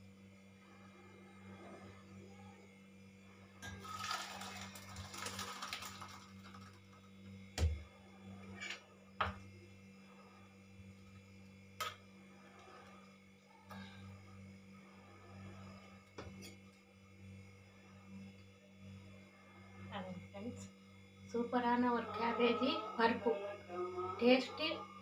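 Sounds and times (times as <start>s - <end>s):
liquid sizzling on stove top: 3.6s - 13.4s.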